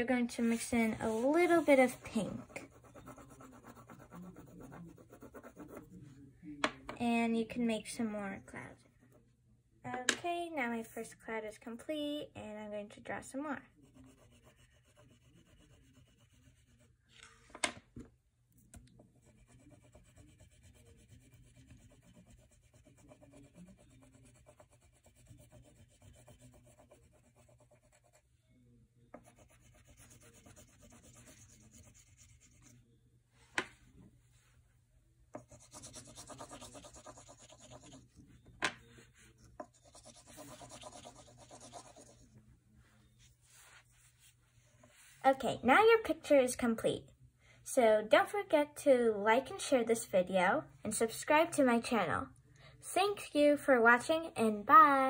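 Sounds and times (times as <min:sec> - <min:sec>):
pastel scratching on paper: 0:00.5 - 0:06.0, 0:13.7 - 0:16.9, 0:19.2 - 0:28.2, 0:29.2 - 0:32.8, 0:35.4 - 0:38.3, 0:38.9 - 0:42.3.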